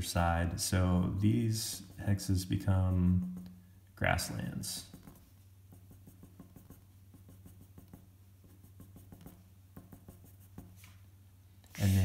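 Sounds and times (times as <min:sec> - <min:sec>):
pencil scratching on paper: 0:01.7 - 0:03.6, 0:04.8 - 0:11.0.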